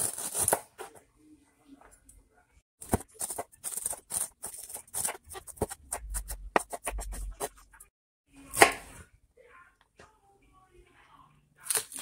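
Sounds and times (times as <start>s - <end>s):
knife chopping on plastic board: 2.8s - 7.5s.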